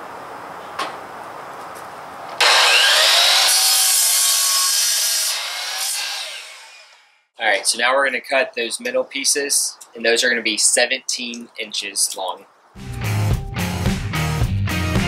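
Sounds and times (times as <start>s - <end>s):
miter saw motor whine: 2.4s - 7.2s
saw cutting through wood: 2.4s - 7.2s.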